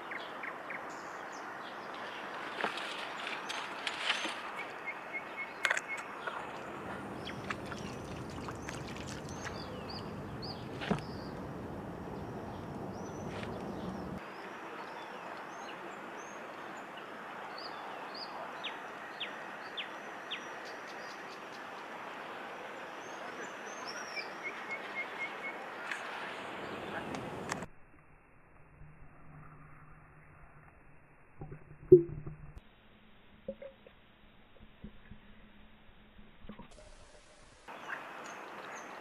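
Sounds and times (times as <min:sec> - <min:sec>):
small birds chirping: 0:00.0 - 0:16.9
steady outdoor hiss: 0:00.0 - 0:28.7, 0:32.6 - 0:39.0.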